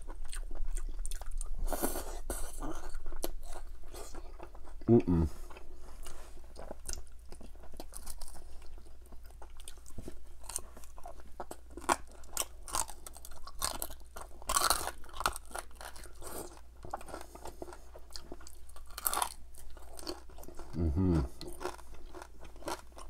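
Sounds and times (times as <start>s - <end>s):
crunching fried chicken: 6.6s - 23.0s.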